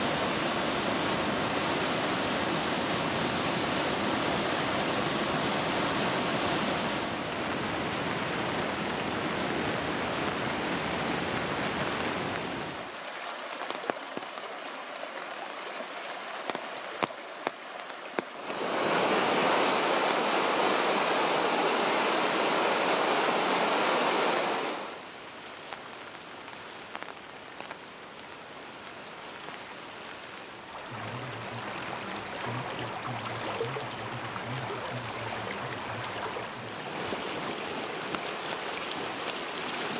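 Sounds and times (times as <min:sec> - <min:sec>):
river rushing: 0:00.0 - 0:25.1, 0:29.1 - 0:39.9
water running in flood channel: 0:00.0 - 0:39.9
water pouring from metal culvert: 0:30.7 - 0:39.9.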